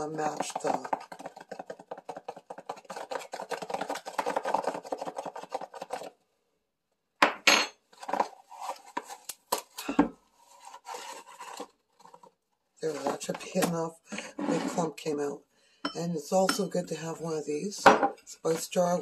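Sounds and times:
spoon scraping in baking soda: 14.2s - 15.0s
spoon clinking against containers: 15.9s - 16.8s.

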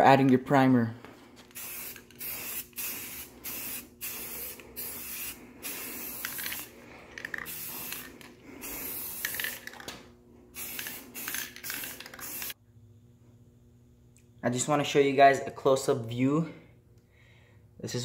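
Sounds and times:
aerosol spray can hissing: 1.5s - 9.8s, 10.6s - 12.6s.

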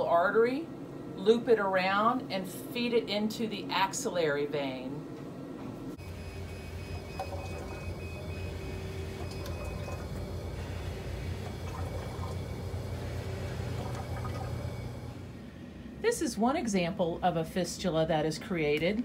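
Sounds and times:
machine humming: 5.9s - 16.0s
high electronic tone pulsing: 6.0s - 13.2s
faint fluid sounds: 6.4s - 15.2s.

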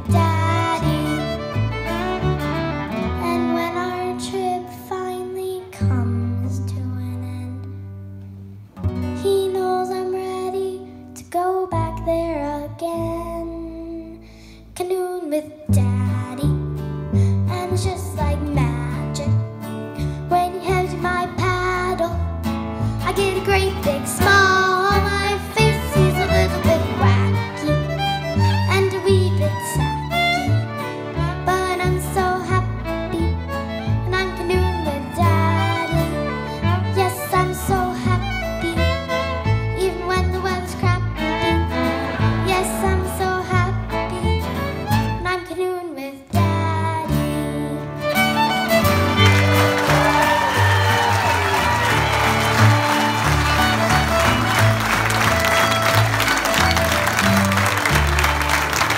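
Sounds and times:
girl singing: 0.0s - 2.3s, 3.0s - 7.9s, 9.1s - 30.5s, 31.1s - 48.2s
upright bass: 0.0s - 3.7s, 15.7s - 45.4s, 46.4s - 58.9s
fiddle playing: 0.0s - 4.7s, 22.8s - 45.5s, 48.0s - 58.9s
acoustic guitar strumming: 20.5s - 45.2s, 47.3s - 58.9s.

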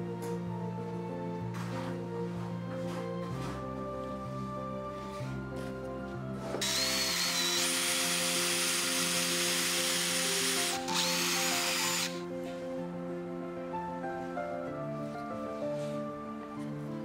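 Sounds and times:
background music: 0.0s - 17.0s
electric drill boring wood: 6.6s - 12.2s.

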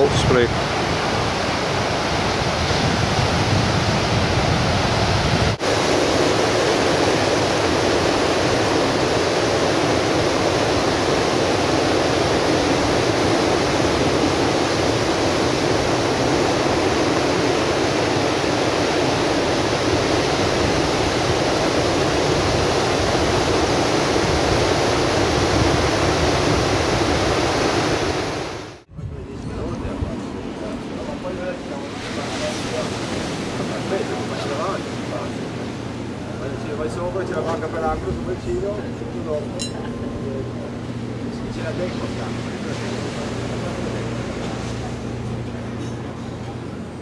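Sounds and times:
surf breaking on rocky shore: 0.0s - 28.8s, 31.0s - 38.0s.

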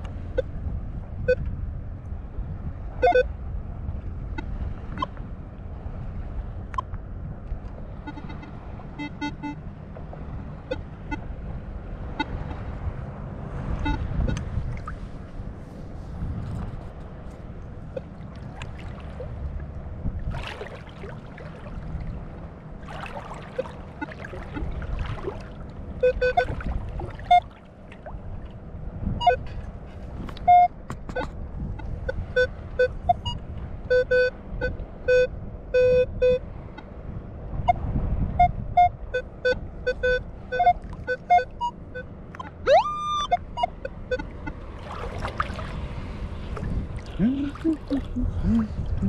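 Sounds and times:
water sloshing around legs: 14.6s - 28.6s, 44.2s - 49.0s
metal detector beeping: 38.4s - 44.3s.

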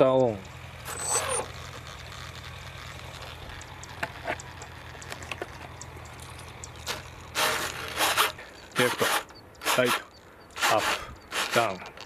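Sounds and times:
faint ticks: 0.0s - 0.6s, 1.6s - 7.3s
electric motor spinning propeller: 0.0s - 12.0s
low steady hum: 0.0s - 12.0s.

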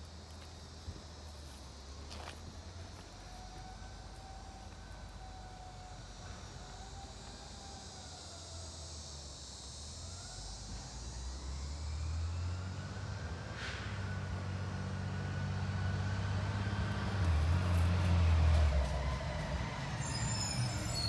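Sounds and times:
insects buzzing: 0.0s - 21.0s
faint whine gliding in pitch: 0.6s - 21.0s
garbage truck engine rumble: 13.0s - 21.0s.

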